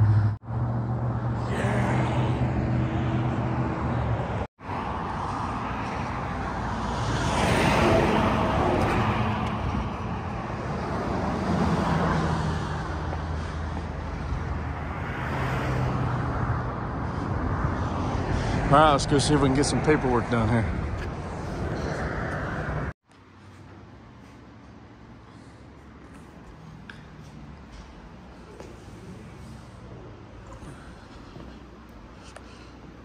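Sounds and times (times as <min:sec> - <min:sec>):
vehicle passing by: 0:00.0 - 0:23.0
road traffic: 0:00.0 - 0:33.0.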